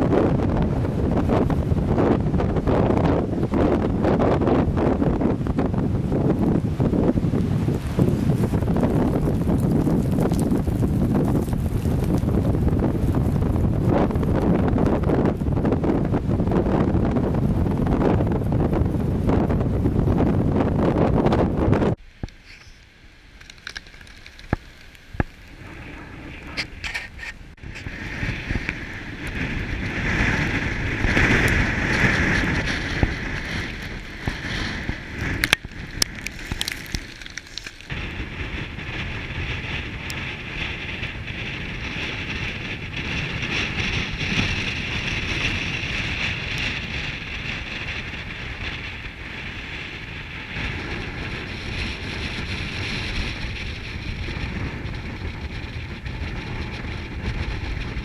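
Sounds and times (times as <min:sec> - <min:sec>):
wind buffeting microphone: 0:00.0 - 0:58.0
wind rushing through treetops: 0:00.0 - 0:58.0
sharp clicks and cracks: 0:22.2 - 0:25.6, 0:31.1 - 0:38.0.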